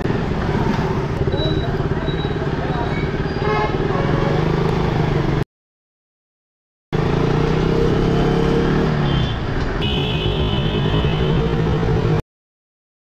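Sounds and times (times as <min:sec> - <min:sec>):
road and traffic noise: 0:00.0 - 0:05.5, 0:07.0 - 0:12.2
motorcycle engine droning: 0:00.1 - 0:05.4.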